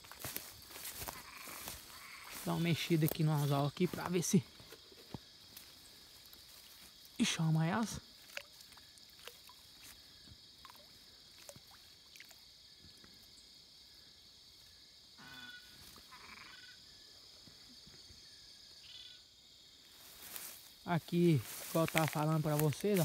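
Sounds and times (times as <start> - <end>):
frog calling: 0.0 - 12.4, 15.2 - 17.0, 18.7 - 19.3
insects droning: 0.0 - 23.0.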